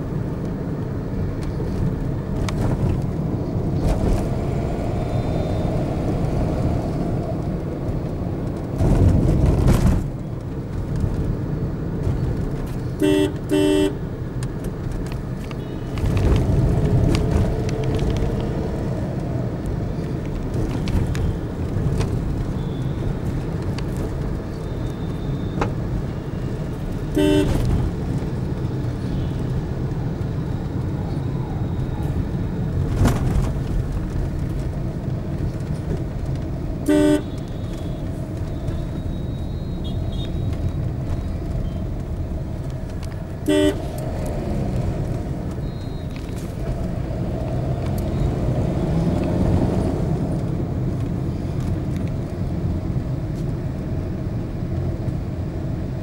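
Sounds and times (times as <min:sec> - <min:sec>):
car engine and road rumble: 0:00.0 - 0:56.0
vehicle horn toots: 0:13.0 - 0:14.0, 0:27.1 - 0:27.8, 0:36.8 - 0:38.1, 0:39.0 - 0:40.5, 0:43.4 - 0:44.0.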